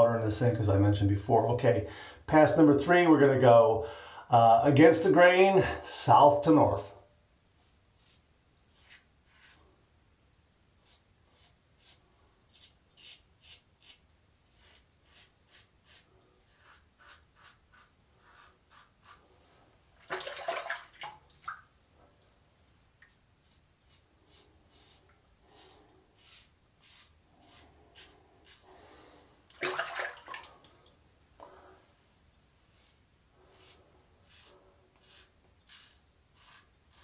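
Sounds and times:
razor scraping stubble: 0:07.6 - 0:09.6, 0:10.8 - 0:19.2, 0:23.0 - 0:28.7, 0:32.7 - 0:37.0
water splash: 0:20.0 - 0:21.7, 0:29.5 - 0:30.7.

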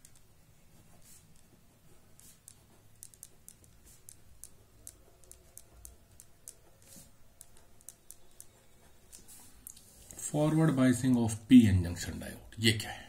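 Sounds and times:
pen scratching on paper: 0:00.1 - 0:09.6.

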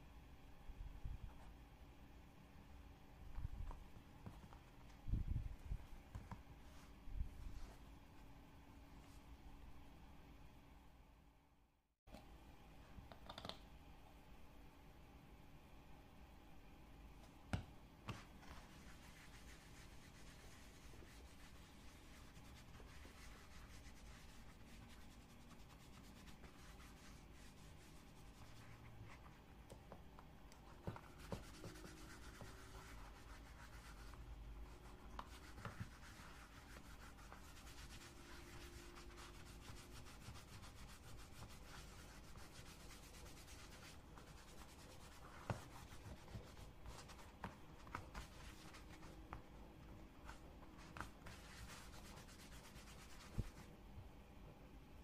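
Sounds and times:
pad rubbing on leather: 0:18.1 - 0:29.4, 0:30.8 - 0:49.2, 0:50.2 - 0:53.7.

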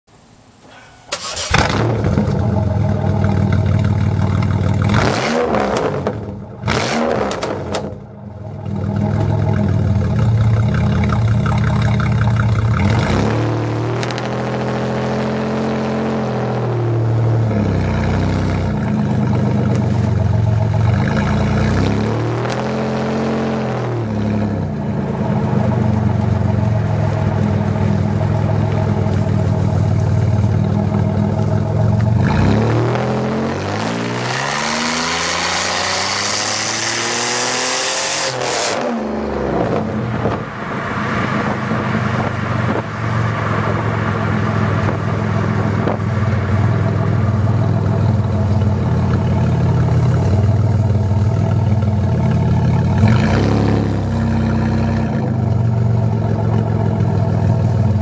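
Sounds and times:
car engine revving and accelerating: 0:01.2 - 0:58.0.

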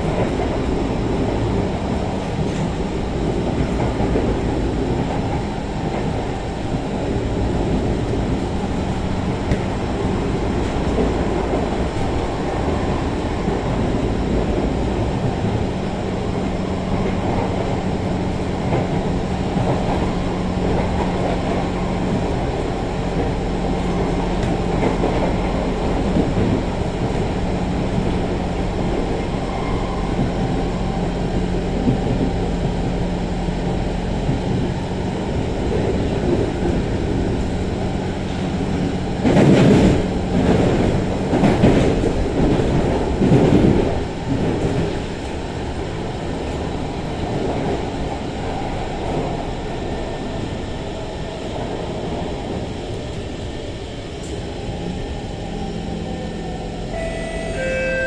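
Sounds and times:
train wheels rumbling on rail: 0:00.0 - 0:58.0.

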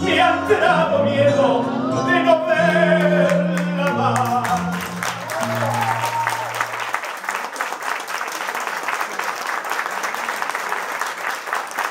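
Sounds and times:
audience applauding: 0:03.0 - 0:11.9.

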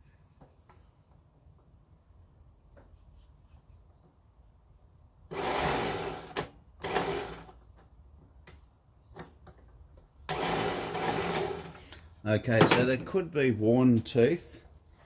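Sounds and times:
starter motor whirring: 0:05.3 - 0:07.6, 0:10.3 - 0:11.8.

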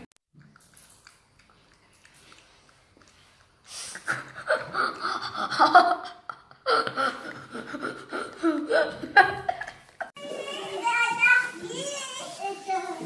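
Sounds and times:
boys giggling and laughing: 0:03.9 - 0:11.0.

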